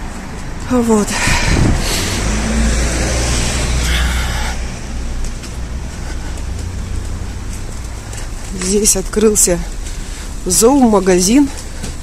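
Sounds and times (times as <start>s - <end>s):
street noise: 0.0s - 12.0s
car driving past: 1.2s - 7.5s.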